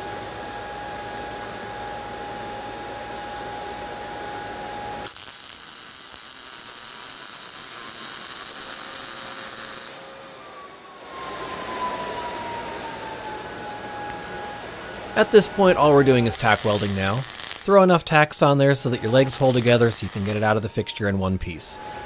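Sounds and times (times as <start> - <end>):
steady hum with held tone: 0.0 - 22.0
welding arc hissing: 5.0 - 10.1, 16.2 - 17.9, 19.2 - 20.6.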